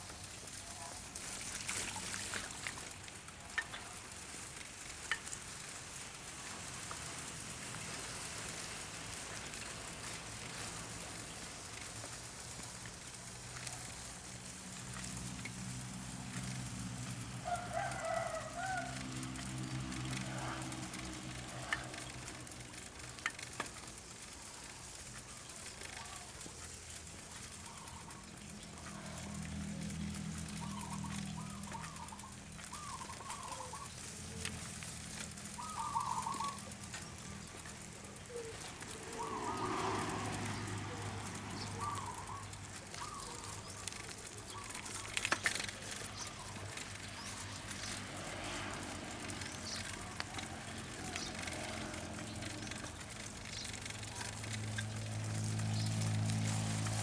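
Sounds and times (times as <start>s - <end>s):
steady hiss: 0.0s - 50.4s
sharp ticks: 6.8s - 57.0s
rooster crowing: 17.4s - 19.4s.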